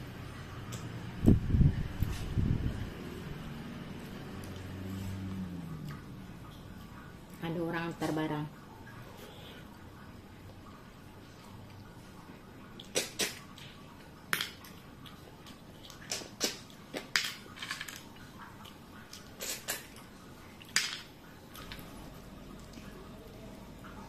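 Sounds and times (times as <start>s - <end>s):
eating clicks and smacks: 12.6s - 20.8s.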